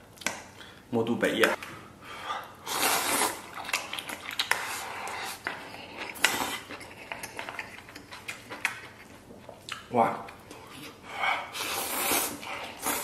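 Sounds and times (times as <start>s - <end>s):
person slurping and chewing: 2.6s - 9.8s, 10.5s - 13.0s.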